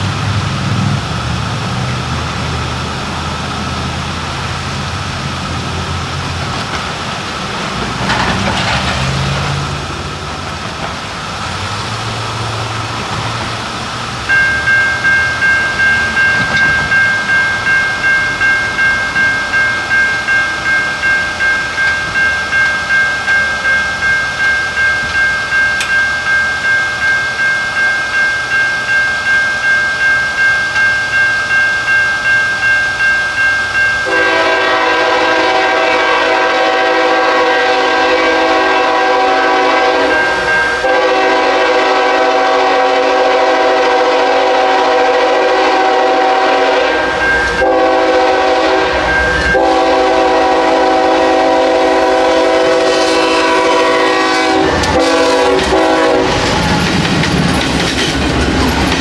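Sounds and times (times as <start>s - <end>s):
train wheels clacking on rails: 0.0s - 59.0s
crossing bell ringing: 12.3s - 59.0s
locomotive air horn blasts: 34.0s - 56.9s.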